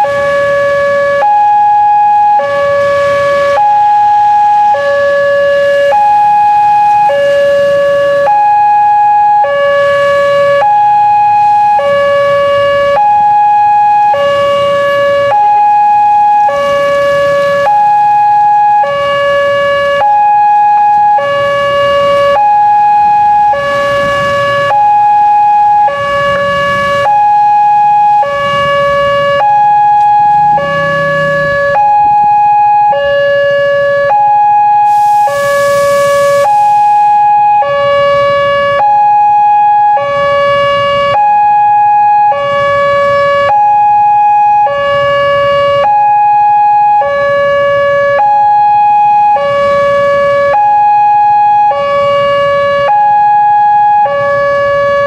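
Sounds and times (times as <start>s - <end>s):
level crossing warning siren: 0.0s - 55.0s
motorcycle engines running: 28.3s - 32.4s.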